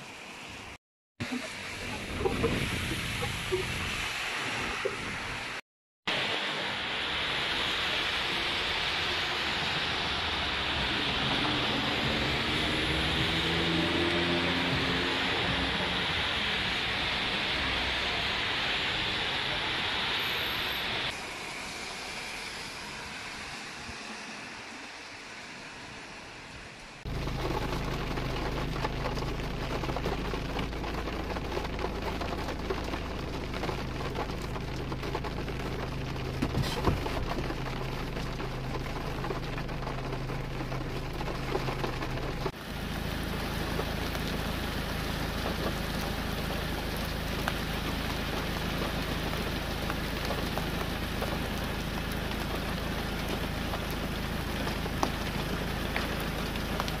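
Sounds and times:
rain falling outdoors: 0.0s - 57.0s
rain pattering on a window: 6.1s - 20.8s, 27.1s - 57.0s.

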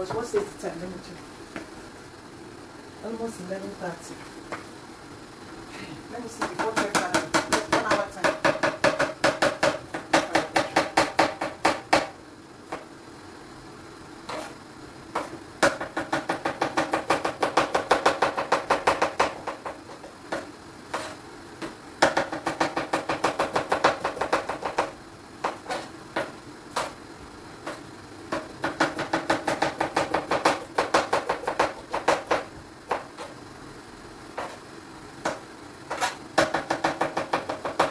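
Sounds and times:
knife chopping on cutting board: 6.4s - 12.1s, 14.3s - 14.6s, 15.2s - 27.0s, 27.6s - 33.4s, 34.4s - 34.6s, 35.2s - 37.9s.

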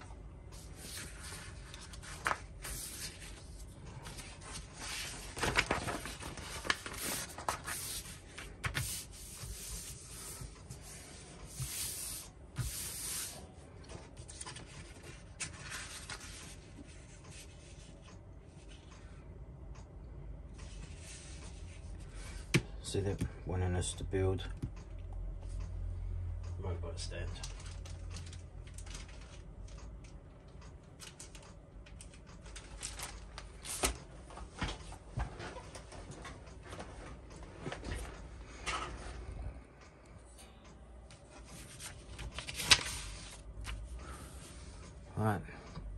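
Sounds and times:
paper rustling and crinkling: 0.6s - 17.8s, 32.0s - 38.2s, 41.5s - 43.9s.

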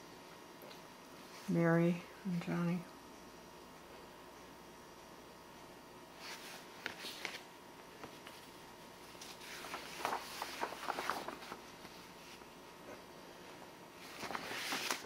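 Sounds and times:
paper pages rustling: 6.2s - 12.5s, 14.0s - 15.0s.

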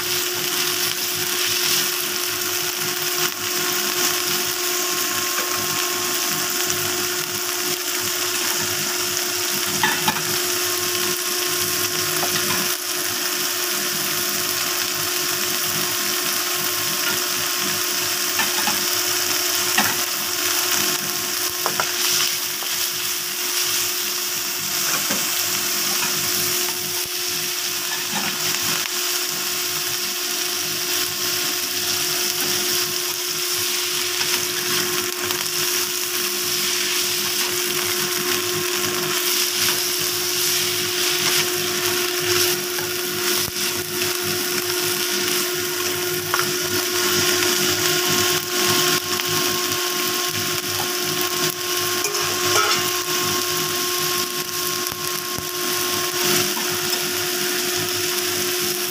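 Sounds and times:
food sizzling in a wok: 0.0s - 58.9s
spatula scraping a wok: 27.6s - 28.9s, 30.9s - 48.8s, 52.0s - 53.4s.

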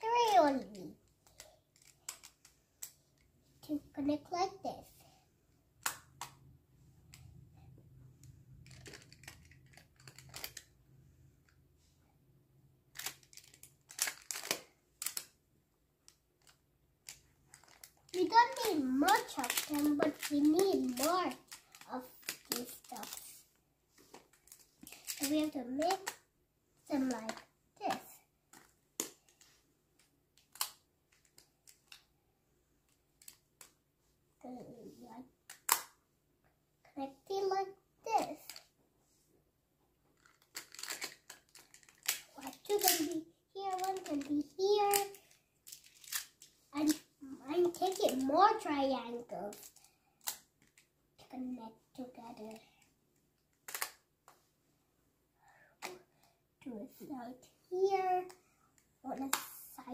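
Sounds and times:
plastic tiles clicking together: 1.2s - 3.0s, 8.5s - 10.7s, 13.0s - 15.3s, 16.0s - 23.2s, 40.2s - 47.0s, 53.6s - 54.0s.

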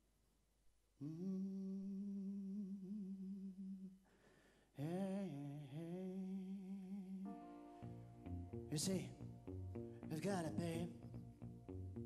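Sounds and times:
man humming: 1.0s - 4.0s
man breathing: 4.0s - 4.8s.

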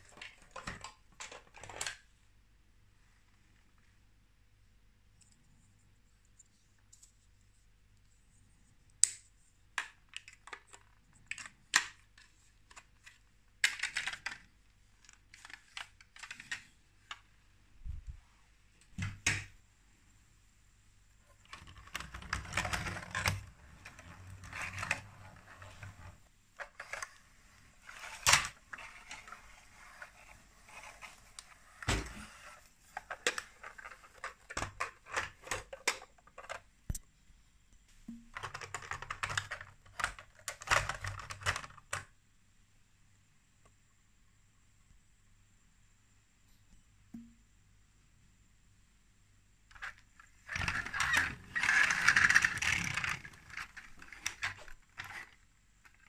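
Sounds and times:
plastic bricks clicking: 9.8s - 17.2s, 21.4s - 27.2s, 38.3s - 42.1s, 49.7s - 56.0s
plastic toys rattling: 12.7s - 17.2s, 21.4s - 36.7s, 38.4s - 42.1s, 49.7s - 56.0s.

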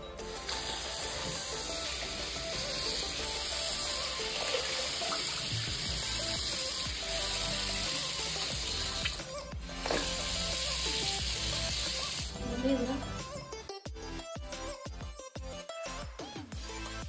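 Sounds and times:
background music: 0.0s - 17.0s
water pouring and splashing: 0.3s - 12.4s.

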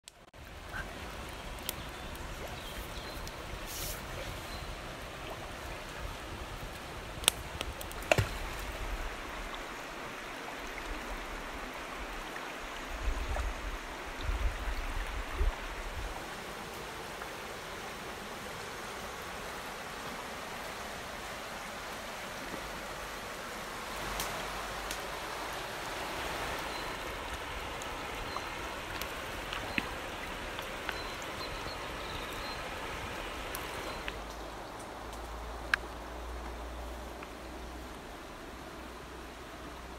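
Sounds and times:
river rushing over stones: 0.4s - 39.9s.

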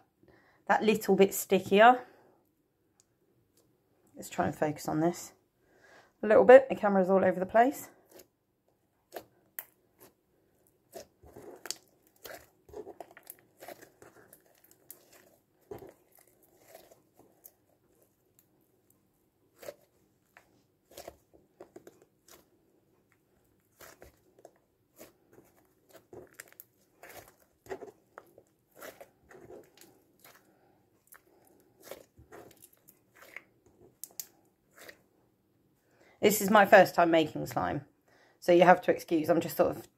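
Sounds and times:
slime kneaded by hand: 8.0s - 35.2s.

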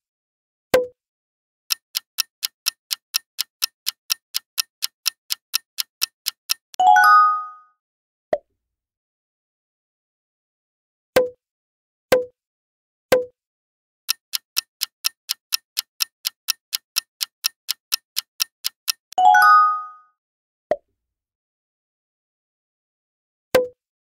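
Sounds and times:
clock ticking fast: 1.7s - 6.8s, 14.1s - 19.2s.

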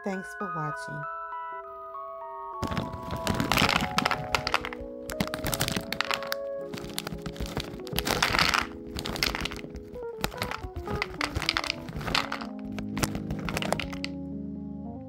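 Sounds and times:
background music: 0.0s - 15.0s
nuts clattering into bowl: 2.6s - 14.1s.

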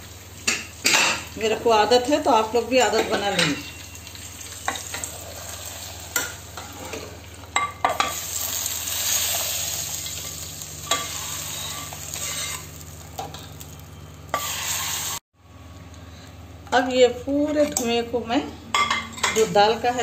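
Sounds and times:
hot oil sizzling: 0.0s - 15.2s
steel ladle scraping pan: 10.8s - 12.7s, 14.3s - 15.2s.

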